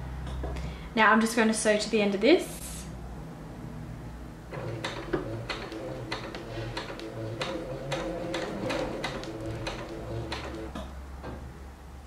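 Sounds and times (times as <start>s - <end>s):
sewing machine stitching: 4.5s - 10.8s.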